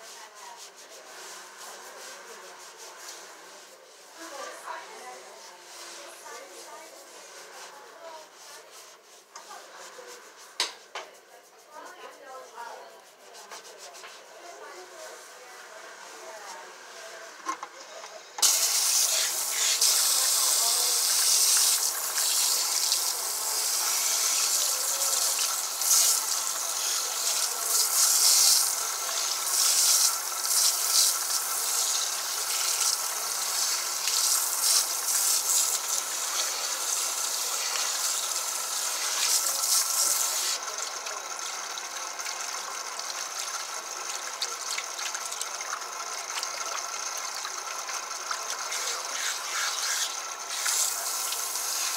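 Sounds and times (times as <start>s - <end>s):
water sprayer hissing and splashing: 18.4s - 51.9s.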